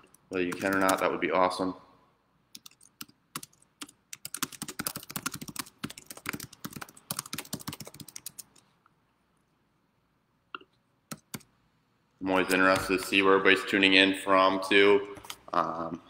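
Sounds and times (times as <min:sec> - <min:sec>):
typing on computer keyboard: 0:00.0 - 0:01.1, 0:02.5 - 0:08.6, 0:11.1 - 0:11.5.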